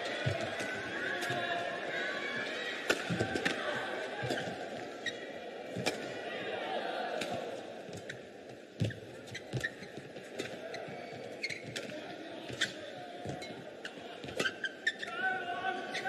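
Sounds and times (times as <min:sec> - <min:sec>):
rackets hitting shuttlecock: 0:02.8 - 0:03.6
shoe squeaks: 0:08.8 - 0:11.9, 0:12.6 - 0:15.1.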